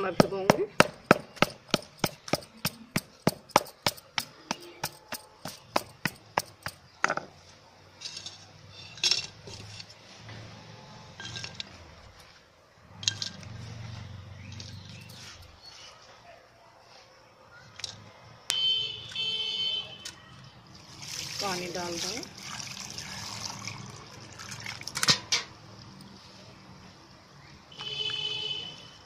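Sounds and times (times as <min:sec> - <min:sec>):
stone pounding clay on stone: 0:00.1 - 0:07.3.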